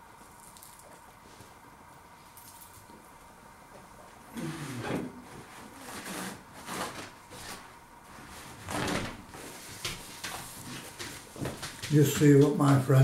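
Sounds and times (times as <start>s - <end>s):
paper napkin rustling: 5.3s - 12.9s.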